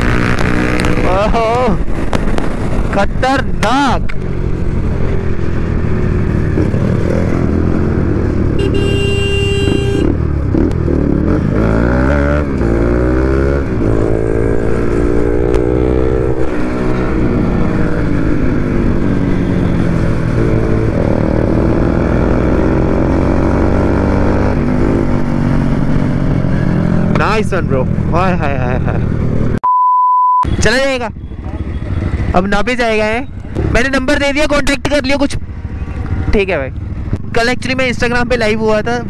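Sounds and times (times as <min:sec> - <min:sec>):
motorcycle engine revving: 0:00.0 - 0:29.6, 0:30.6 - 0:39.0
brief steady tone: 0:29.6 - 0:30.5.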